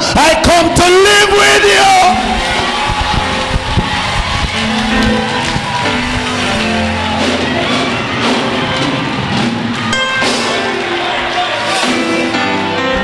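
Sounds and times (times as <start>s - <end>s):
upbeat church praise music: 0.0s - 13.0s
steady drum beat: 2.0s - 10.9s.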